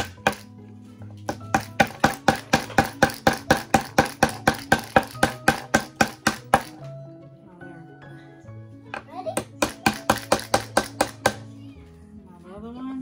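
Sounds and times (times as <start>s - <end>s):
hammer driving nails: 0.0s - 0.5s, 1.1s - 6.9s, 9.4s - 11.5s.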